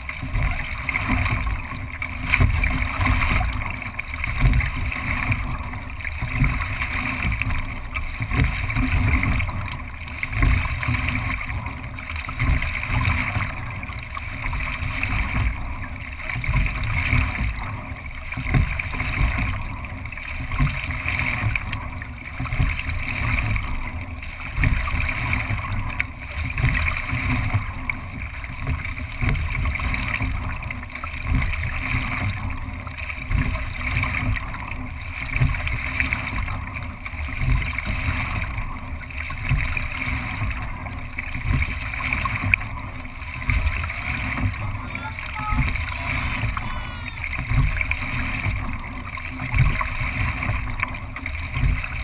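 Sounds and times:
water rushing along hull: 0.0 - 52.0.

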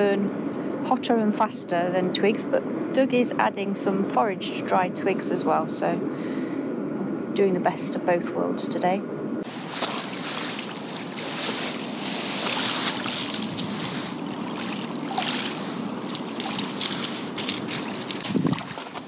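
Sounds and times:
small waves washing onto pebbles: 9.4 - 19.0.

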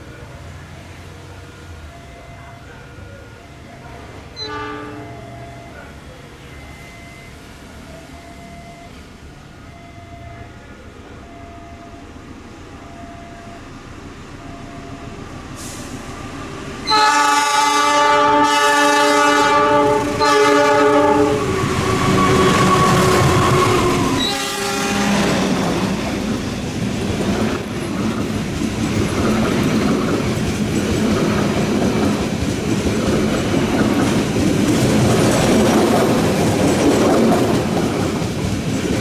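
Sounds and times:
train rumble: 0.0 - 39.0
locomotive horn blasts: 4.4 - 5.4, 16.8 - 26.0.

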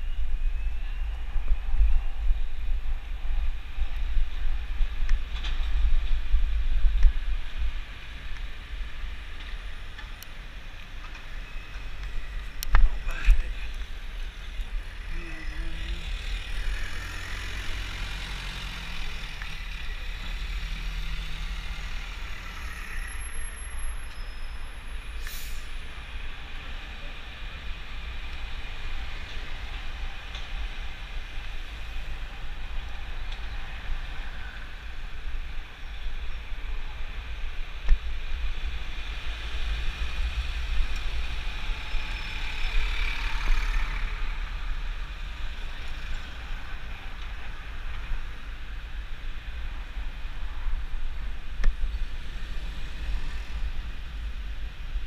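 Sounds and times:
road and traffic rumble: 0.0 - 55.0
brief sharp hiss: 25.2 - 25.8.

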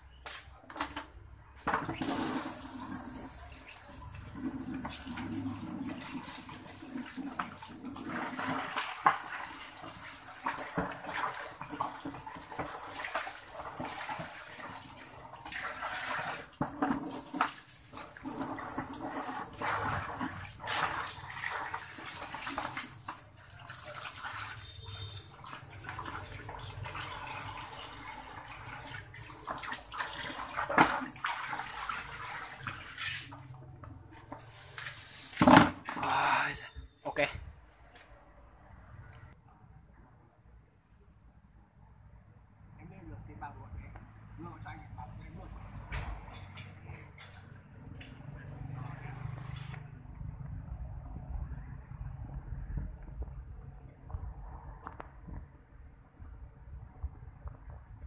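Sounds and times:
tap water splashing on concrete: 0.2 - 33.6, 34.3 - 36.1.

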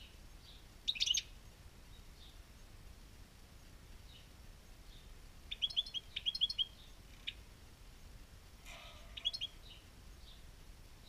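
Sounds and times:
goldfinch singing: 0.4 - 1.3, 5.5 - 7.4, 8.7 - 10.4.

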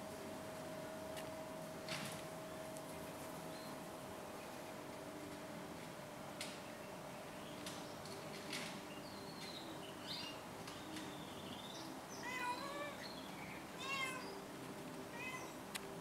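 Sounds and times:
cat meowing: 12.2 - 13.0, 13.8 - 14.2, 15.1 - 15.6.

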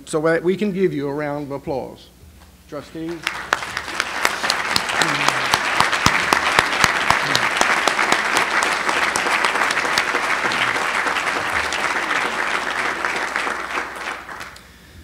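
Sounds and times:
audience applauding: 3.0 - 14.7.

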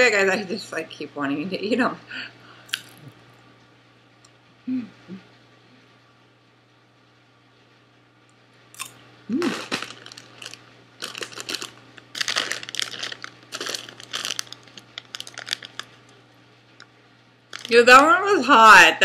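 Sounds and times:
crunching popcorn: 2.7 - 3.0, 8.8 - 16.2, 17.5 - 17.8
plastic snack bag crinkling: 8.8 - 16.2, 17.5 - 18.0.

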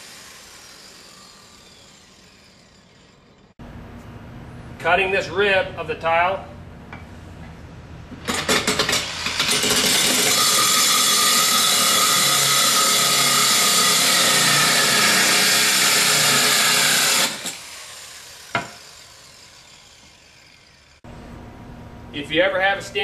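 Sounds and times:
grinder grinding concrete: 0.0 - 3.5, 8.3 - 21.0.

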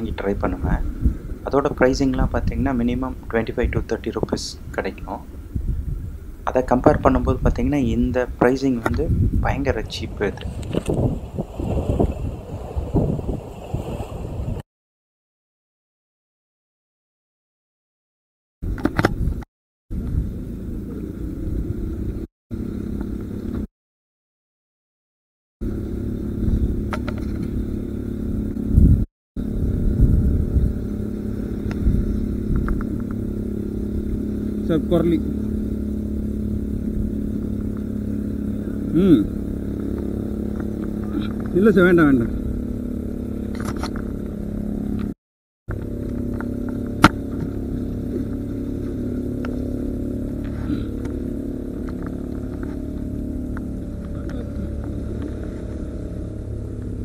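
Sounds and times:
low steady hum: 0.0 - 13.2, 25.6 - 57.0
low engine drone: 0.0 - 14.6, 18.7 - 23.7, 25.6 - 57.0
wind rumbling on microphone: 0.0 - 14.6, 18.6 - 23.7, 25.6 - 57.0.

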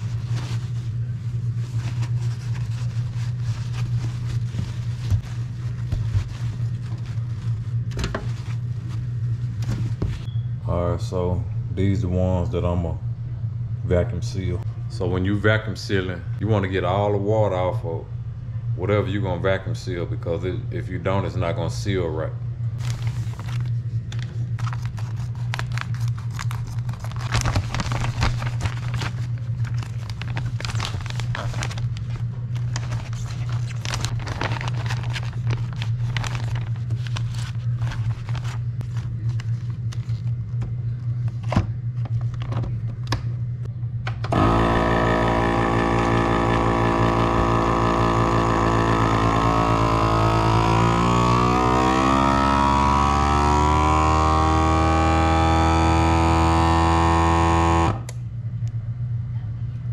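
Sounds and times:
plastic bag crinkling: 0.0 - 9.1, 22.8 - 40.3
steady low hum: 0.0 - 59.9
vacuum sealer pump whine: 21.1 - 59.0.

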